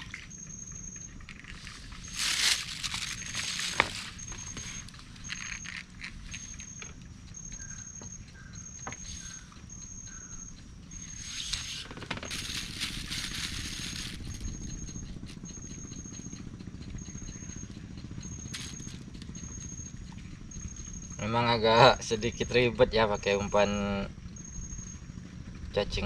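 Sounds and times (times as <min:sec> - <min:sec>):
high-pitched insect call: 0:00.0 - 0:25.2
low outdoor rumble: 0:00.0 - 0:26.0
rustling handling noise: 0:01.4 - 0:06.4, 0:11.4 - 0:14.6.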